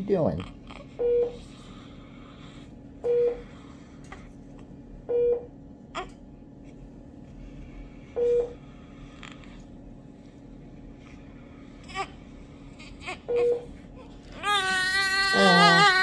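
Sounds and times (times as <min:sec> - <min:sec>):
steady low hum: 0:00.0 - 0:16.0
medical equipment beeps: 0:01.0 - 0:01.4, 0:03.0 - 0:03.4, 0:05.1 - 0:05.5, 0:08.2 - 0:08.6, 0:13.3 - 0:13.6.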